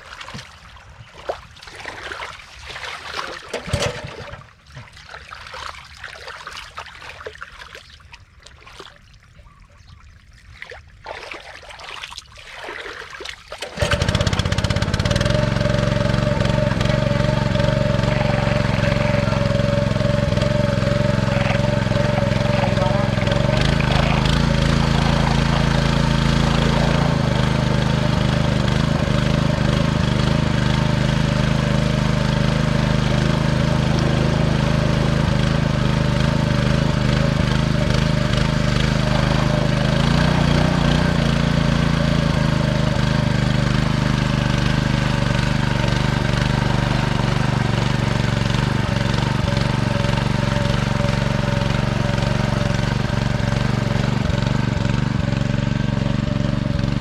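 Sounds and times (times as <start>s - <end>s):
small engine running: 3.5s - 4.5s, 13.6s - 57.0s.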